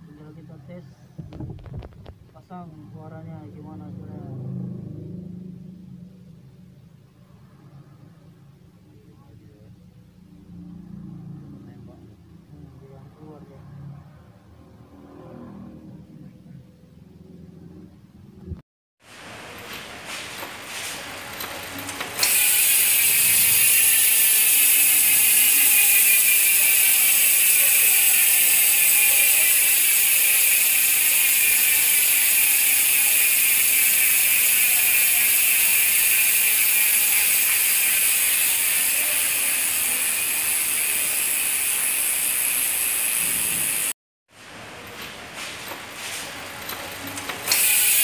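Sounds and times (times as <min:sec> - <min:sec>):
bicycle hub buzzing: 0:19.5 - 0:44.0, 0:46.4 - 0:48.0.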